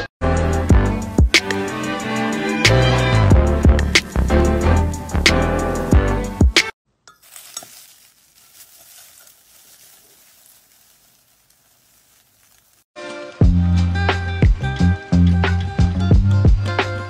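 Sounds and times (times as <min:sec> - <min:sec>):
background music: 0:00.0 - 0:06.7, 0:13.0 - 0:17.0
dried petals rustling: 0:07.2 - 0:12.9.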